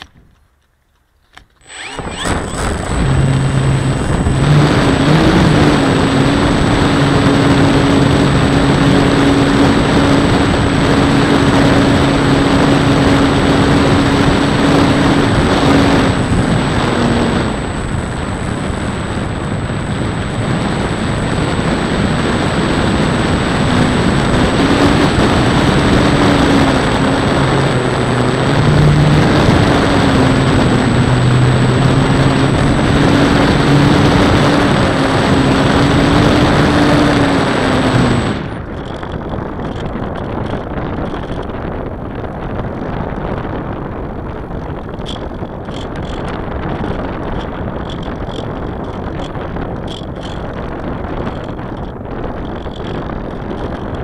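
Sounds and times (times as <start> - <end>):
model airplane motor droning: 1.2 - 54.0
wind rush on microphone: 1.6 - 54.0.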